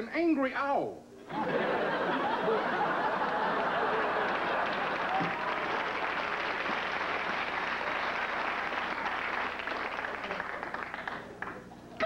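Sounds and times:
studio audience applauding: 3.0 - 11.6.

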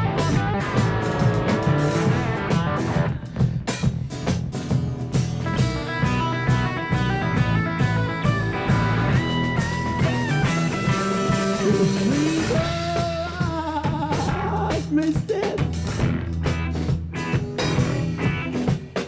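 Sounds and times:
street band playing rock and roll: 0.0 - 19.0
person singing: 10.9 - 15.9.

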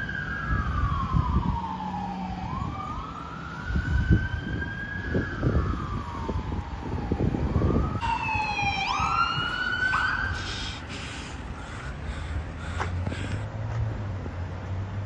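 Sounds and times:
fire engine siren wailing: 0.0 - 11.4
emergency siren wailing: 0.0 - 11.5
engine rumble: 0.0 - 15.0.

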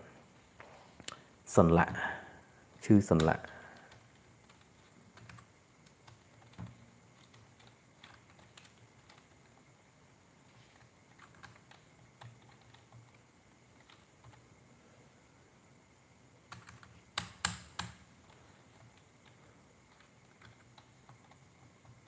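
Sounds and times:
keyboard typing: 3.1 - 9.6, 10.6 - 14.5, 16.4 - 22.0.

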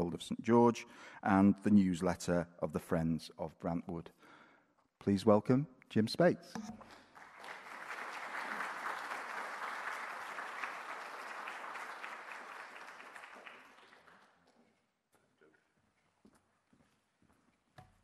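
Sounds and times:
audience applauding: 6.8 - 14.6.

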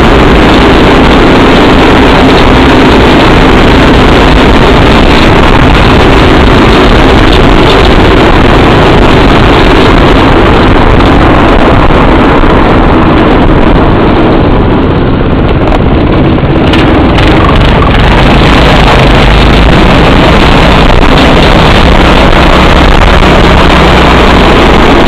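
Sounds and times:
go-kart engine running: 0.0 - 25.0
wind rumble on microphone: 0.0 - 25.0.

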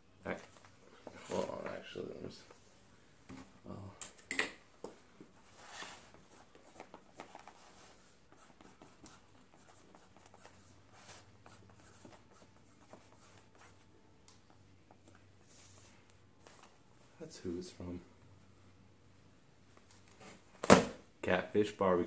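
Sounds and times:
pen scratching on paper: 5.5 - 13.8.

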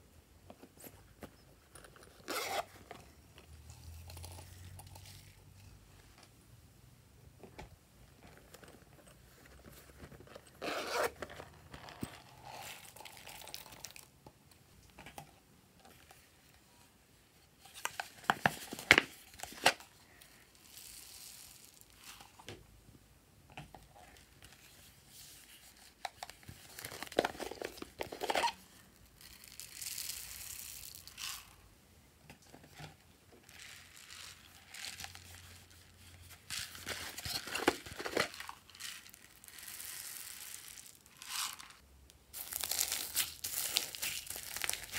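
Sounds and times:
foam beads pouring: 20.5 - 22.2, 29.2 - 31.6, 36.5 - 44.9.

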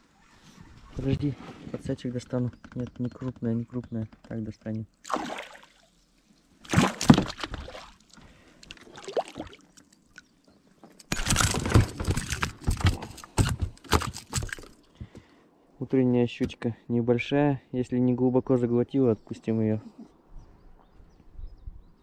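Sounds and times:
fish splashing in water: 5.0 - 5.9, 6.6 - 8.1.

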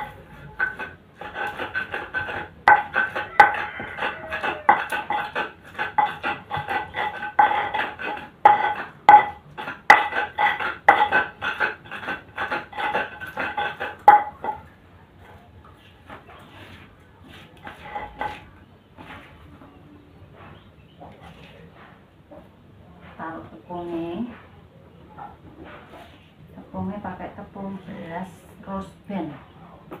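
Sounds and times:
pestle scraping in mortar: 0.0 - 19.5.

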